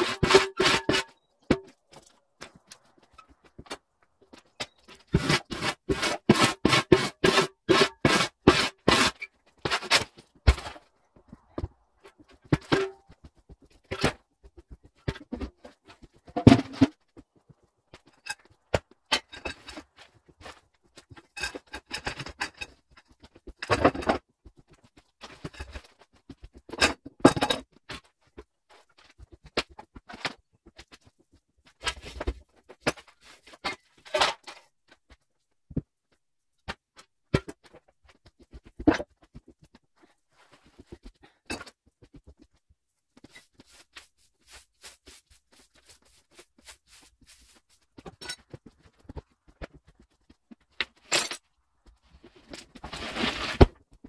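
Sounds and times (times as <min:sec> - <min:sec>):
scraping and rustling: 0:37.6 - 0:51.1, 0:52.0 - 0:54.0.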